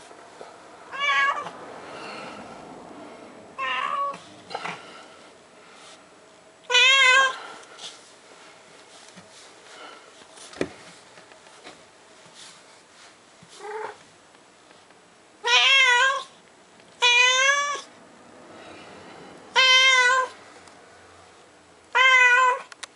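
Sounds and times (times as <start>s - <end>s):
cat meowing: 0.9s - 1.5s, 3.6s - 4.2s, 6.7s - 7.4s, 15.4s - 16.3s, 17.0s - 17.9s, 19.5s - 20.4s, 21.9s - 22.7s.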